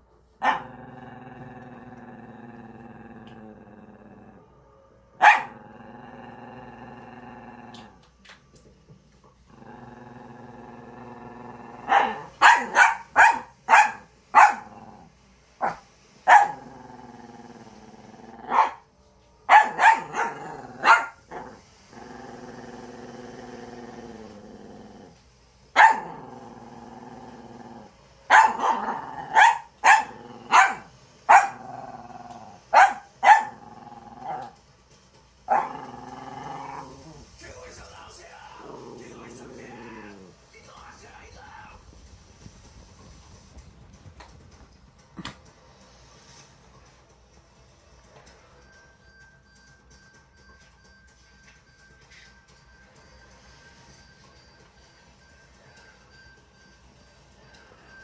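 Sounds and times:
dog barking: 0.4s - 0.7s, 5.2s - 5.6s, 11.9s - 14.8s, 15.6s - 16.6s, 18.5s - 18.8s, 19.5s - 21.2s, 25.8s - 26.2s, 28.3s - 31.7s, 32.7s - 33.6s, 35.5s - 35.7s
small dog growling: 0.4s - 4.5s, 5.2s - 8.1s, 9.3s - 12.8s, 14.4s - 18.8s, 19.7s - 25.2s, 25.8s - 34.6s, 35.5s - 37.4s, 38.4s - 40.4s.

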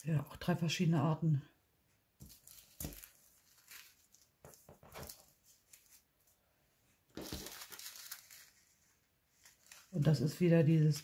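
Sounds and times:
plastic bags crinkling: 2.2s - 6.1s, 7.1s - 11.0s.

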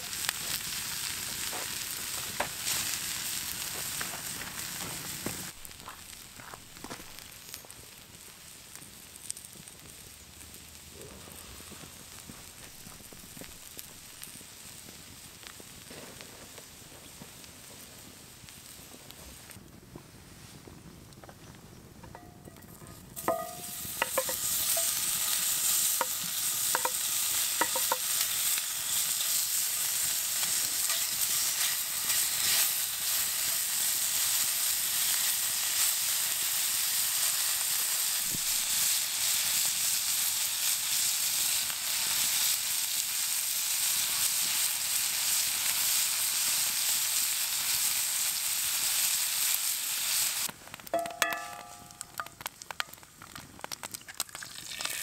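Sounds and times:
meat sizzling in a skillet: 0.0s - 11.0s, 11.6s - 19.5s, 23.2s - 53.0s, 53.7s - 55.0s
knife clinking on skillet: 22.2s - 25.0s, 26.8s - 27.0s, 27.6s - 28.1s, 51.0s - 52.3s.

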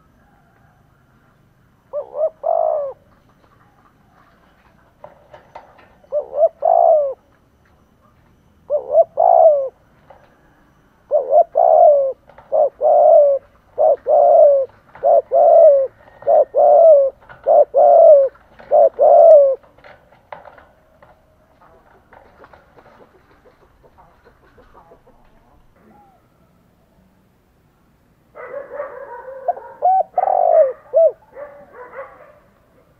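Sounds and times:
dove cooing: 1.8s - 7.3s, 8.0s - 20.7s, 21.6s - 26.6s, 28.4s - 32.9s.

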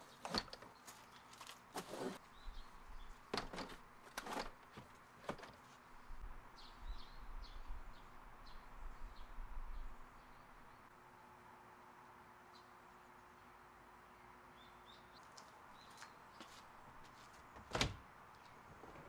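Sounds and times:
small birds chirping: 0.0s - 3.3s, 6.0s - 11.0s, 12.5s - 17.6s.

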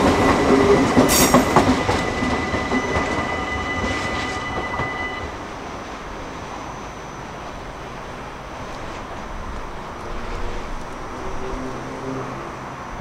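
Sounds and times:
railway noise: 0.0s - 13.0s
traffic rumble: 5.3s - 13.0s.

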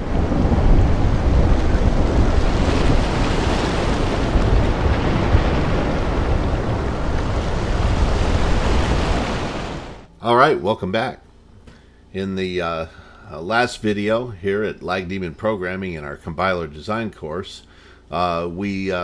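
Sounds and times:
rushing noise with deep rumble: 0.0s - 10.1s.

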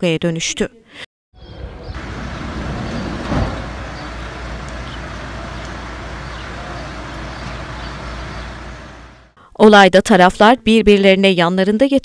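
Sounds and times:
vehicle engine idling: 1.4s - 9.4s
dull knock: 2.0s - 4.7s.

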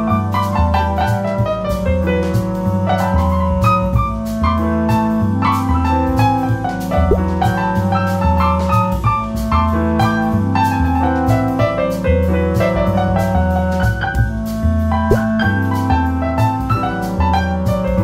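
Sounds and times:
jazz piano: 0.0s - 18.0s
bass line: 15.1s - 15.3s.

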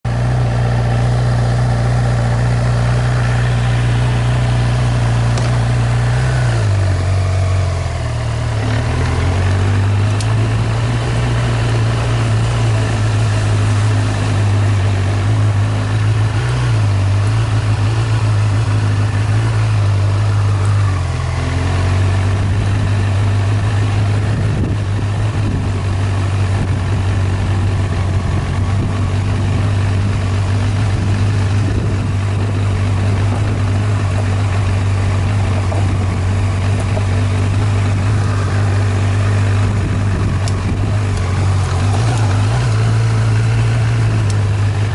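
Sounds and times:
motorcycle engine running: 0.0s - 44.9s.

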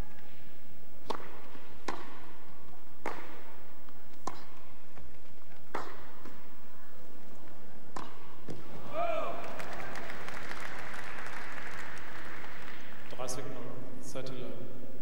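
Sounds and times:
tennis ball pops: 1.0s - 2.3s, 3.0s - 6.5s, 7.9s - 8.7s.

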